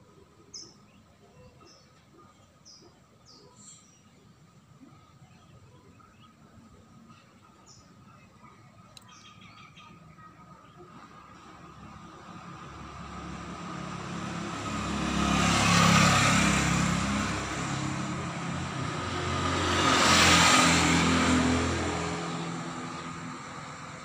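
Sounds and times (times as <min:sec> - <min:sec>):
vehicles passing by: 0:00.0 - 0:24.0.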